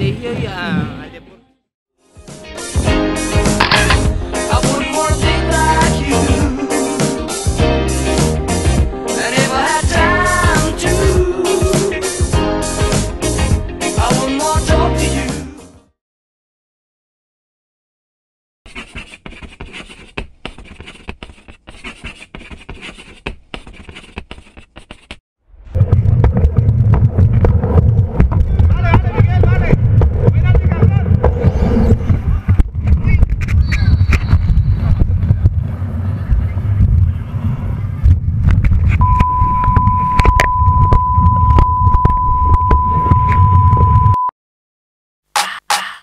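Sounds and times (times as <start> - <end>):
camera handled and bumped: 3.6 - 4.0
pen scratching on surface: 18.7 - 25.2
steady high beep tone: 39.0 - 44.3.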